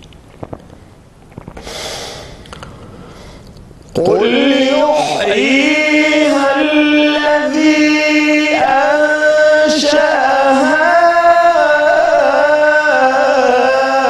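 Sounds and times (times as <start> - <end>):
man chanting: 4.0 - 14.0.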